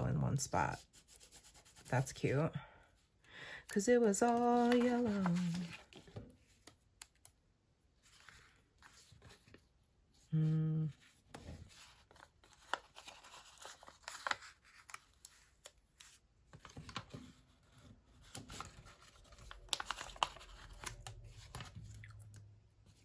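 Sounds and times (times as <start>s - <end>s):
paper sheets rustling: 4.2s - 6.7s, 11.3s - 21.9s.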